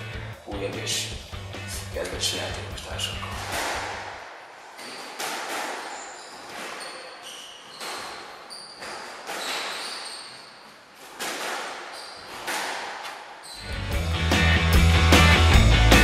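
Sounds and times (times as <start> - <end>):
squash ball hits echoing: 3.2 - 10.1, 11.0 - 13.4
shoes squeaking on wooden floor: 4.6 - 13.8.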